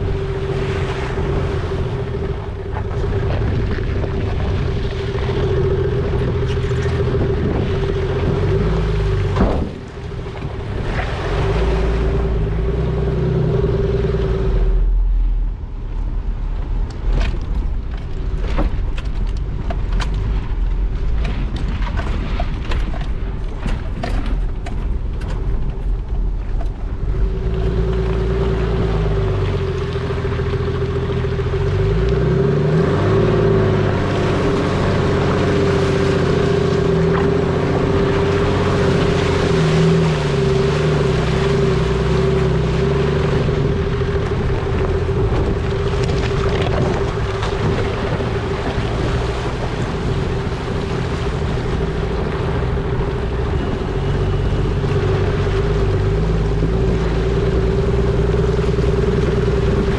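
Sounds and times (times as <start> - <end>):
wind buffeting microphone: 0.0 - 14.6, 32.8 - 59.9
vehicle engine revving under load: 0.0 - 15.1, 27.0 - 59.9
steady whine: 0.0 - 18.0
vehicle driving through water: 0.0 - 59.9.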